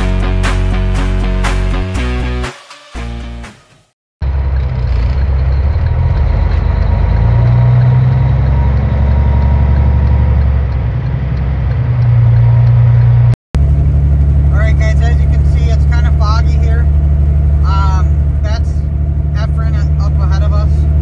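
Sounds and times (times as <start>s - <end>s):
background music: 0.0s - 3.9s
diesel truck engine droning: 4.2s - 21.0s.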